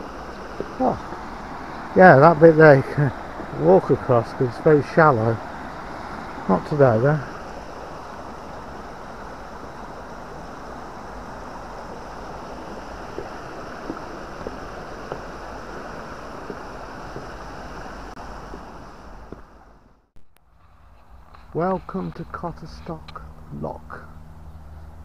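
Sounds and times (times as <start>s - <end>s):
stream rushing: 0.0s - 20.0s
footsteps on wooden footbridge: 12.7s - 19.6s.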